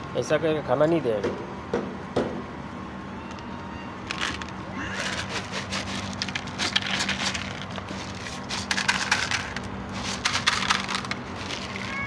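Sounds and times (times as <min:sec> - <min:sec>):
dry kibble rattling into dishes: 0:04.1 - 0:12.0.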